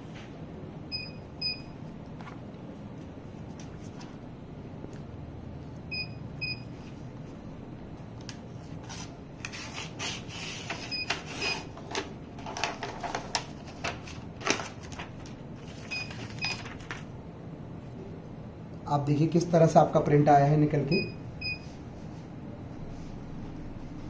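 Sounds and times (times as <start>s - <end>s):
paper wrapping rustling and crinkling: 8.6s - 17.1s.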